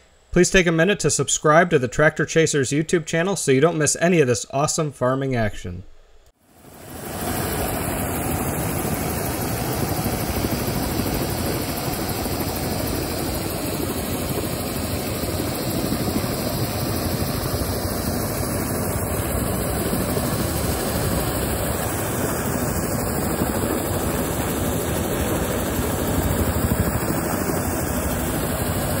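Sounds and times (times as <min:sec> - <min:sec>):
helicopter rotor and turbine: 0:06.4 - 0:29.0.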